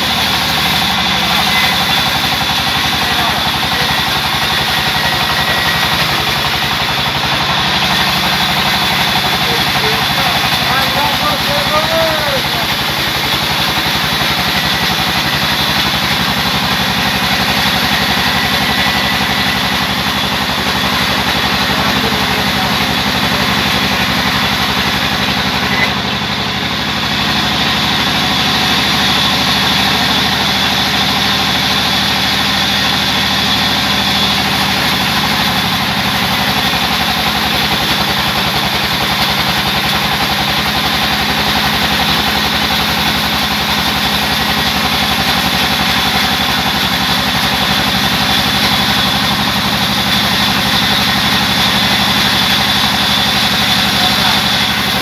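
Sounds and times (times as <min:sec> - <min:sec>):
band saw machine hum: 0:00.0 - 0:55.0.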